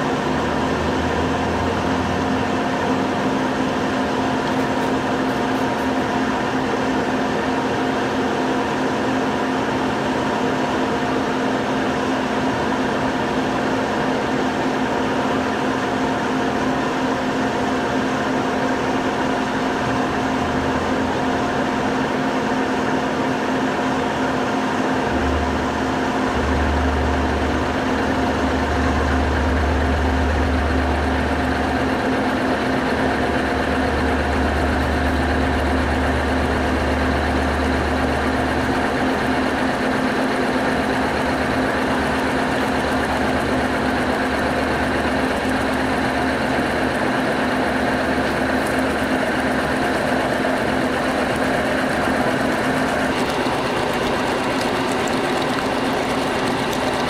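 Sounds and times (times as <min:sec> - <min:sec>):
deeper hum: 0:24.9 - 0:39.3.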